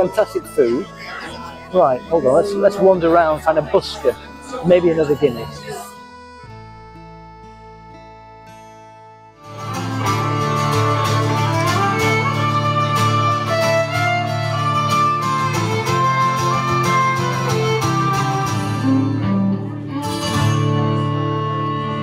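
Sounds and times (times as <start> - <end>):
quiet held notes: 0.0 - 5.9
fiddle: 0.0 - 8.1, 9.4 - 22.0
acoustic guitar: 0.0 - 22.0.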